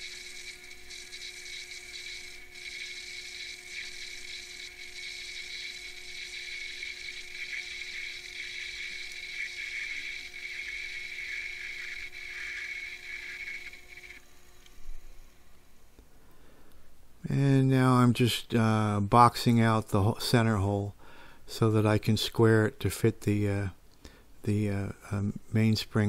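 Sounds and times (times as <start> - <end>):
high cutting hiss: 0.0 - 14.2
lathe motor whine: 0.0 - 14.3.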